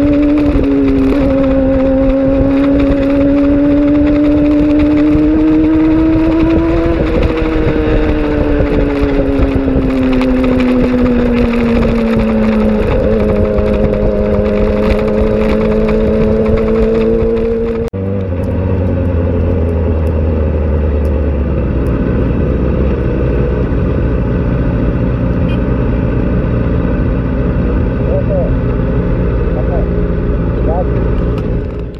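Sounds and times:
wind rush: 0:00.0 - 0:17.9
motorcycle engine running: 0:00.0 - 0:31.9.

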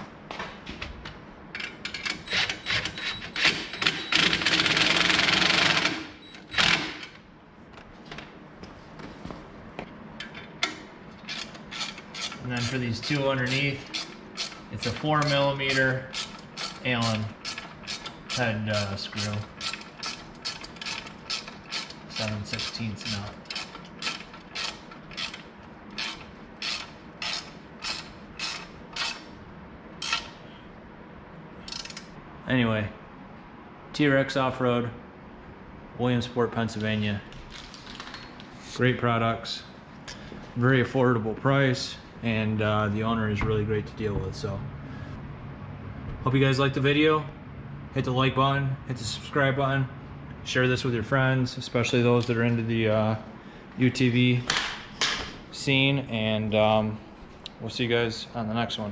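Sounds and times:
ratchet clicking: 0:11.2 - 0:29.3, 0:30.0 - 0:30.3, 0:31.6 - 0:32.1.

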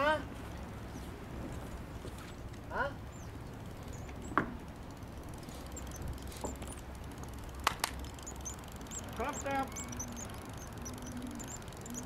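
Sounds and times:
sharp clicks: 0:05.6 - 0:12.0
faint bird chirps: 0:05.7 - 0:06.8, 0:08.2 - 0:12.0.

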